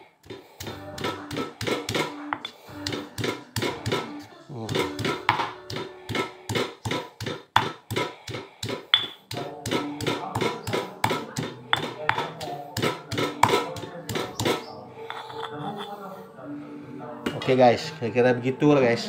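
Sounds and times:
stone pestle pounding in mortar: 0.3 - 4.1, 4.7 - 14.7.

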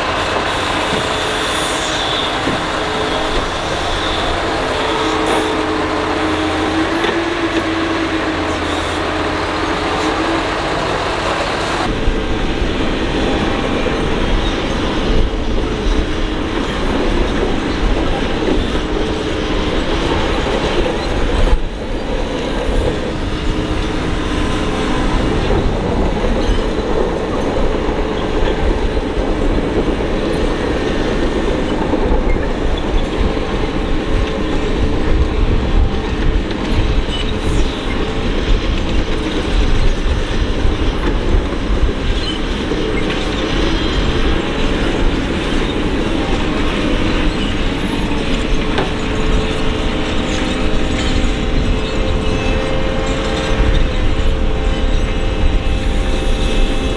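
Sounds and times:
excavator working: 0.0 - 56.9.

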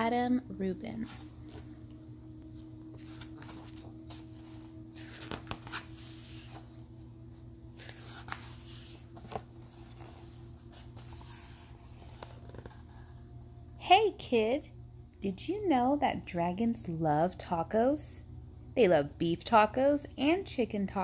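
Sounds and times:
faint hum: 0.0 - 21.0
book pages turning: 1.0 - 13.3.

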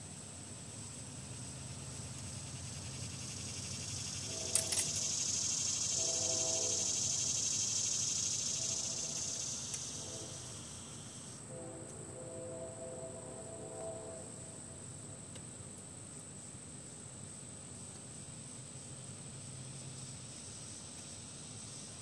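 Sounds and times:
hissing insect song: 0.0 - 22.0
high-pitched insect trill: 0.1 - 11.5, 16.1 - 22.0.

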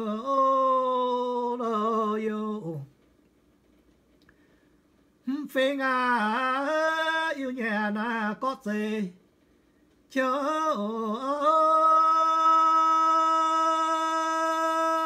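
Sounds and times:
man singing unaccompanied: 0.0 - 3.0, 5.2 - 9.3, 10.1 - 15.0.

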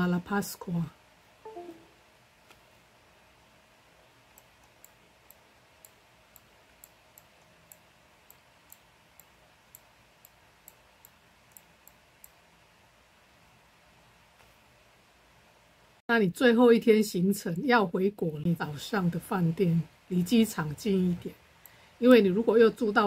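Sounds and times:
computer mouse clicks: 4.3 - 12.4.

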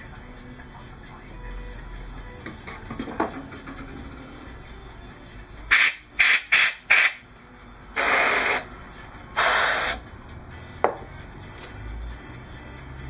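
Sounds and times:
air blasts hissing: 5.7 - 7.2, 8.0 - 8.7, 9.3 - 10.0.

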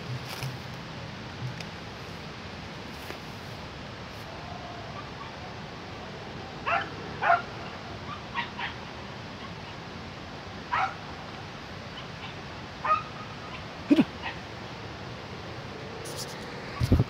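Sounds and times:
dogs yelping: 4.2 - 9.9, 10.7 - 11.1, 11.9 - 14.5.

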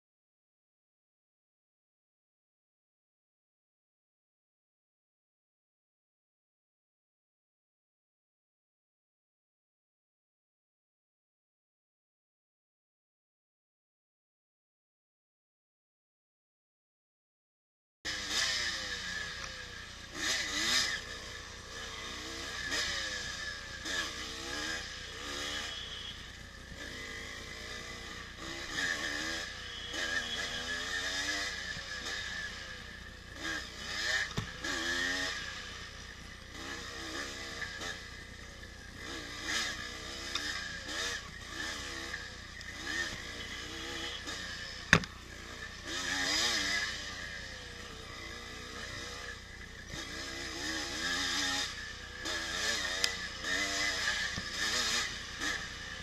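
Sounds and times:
motorcycle engine revving: 18.1 - 56.0.

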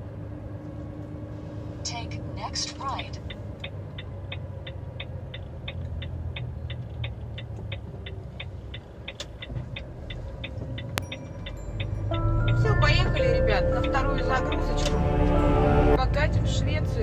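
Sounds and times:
diesel engine low rumble: 0.0 - 17.0
turn signal ticking: 2.2 - 15.4.

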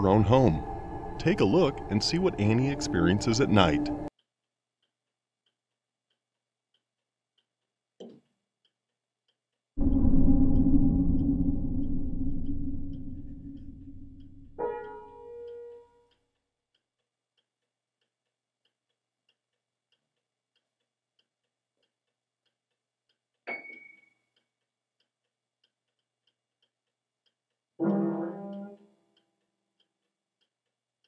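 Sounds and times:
piano notes ringing: 0.0 - 4.1
clock ticking: 4.1 - 15.3.

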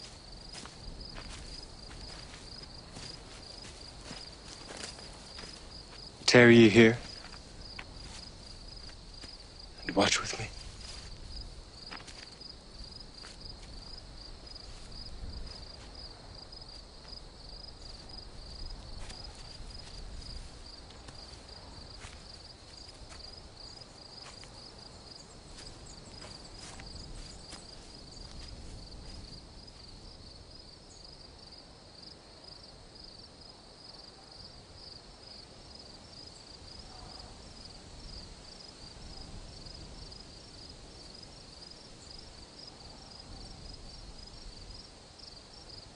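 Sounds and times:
crickets chirping: 0.0 - 45.9.

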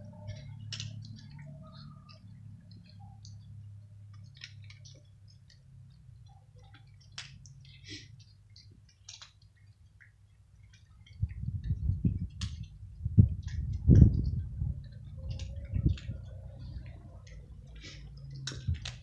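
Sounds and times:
low buffeting on microphone: 0.0 - 5.1, 10.8 - 19.0
cats crunching dry kibble: 4.0 - 5.8, 6.6 - 19.0.

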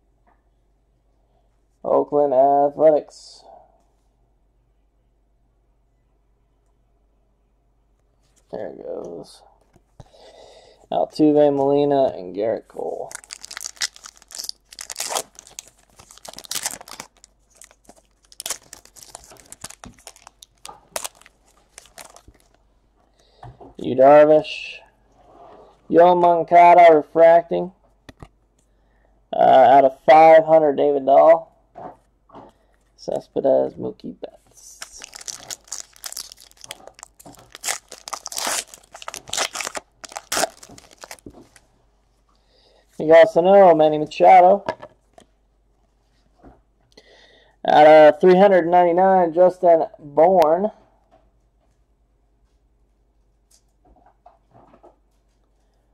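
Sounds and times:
wrapper crinkling and tearing: 12.8 - 22.6, 34.6 - 41.6
cards rustling and snapping: 13.0 - 22.6, 34.7 - 41.6.

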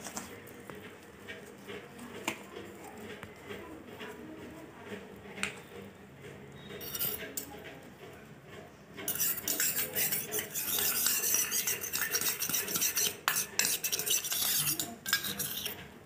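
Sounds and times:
metal spoon scraping steel bowl: 6.6 - 7.5, 9.0 - 16.0.

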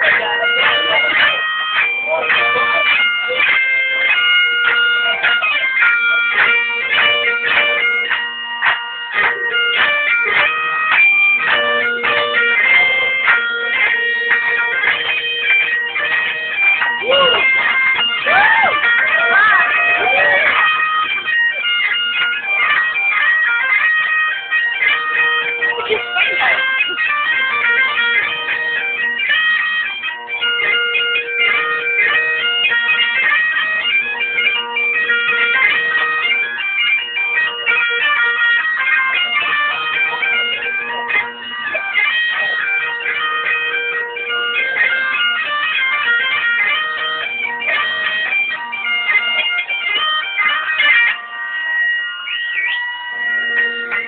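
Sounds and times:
bagpipe chanter melody: 0.0 - 54.0
bagpipe drones: 0.0 - 54.0.

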